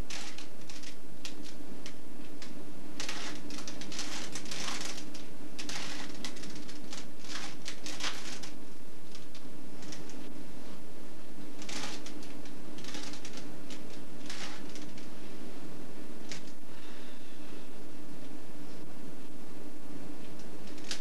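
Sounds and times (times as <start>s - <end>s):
steady low hum: 0.0s - 21.0s
puzzle cube clicking and rattling: 0.1s - 1.6s, 3.0s - 10.2s, 11.6s - 15.1s, 20.7s - 21.0s.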